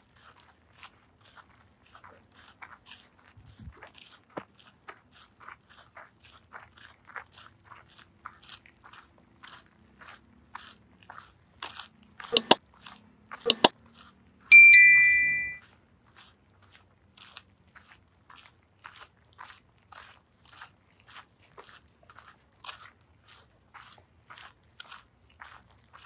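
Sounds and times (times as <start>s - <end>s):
metallic bell ding: 12.4s - 12.6s, 13.5s - 13.7s, 14.5s - 15.6s
sharp clicks: 12.4s - 12.6s, 13.5s - 13.7s.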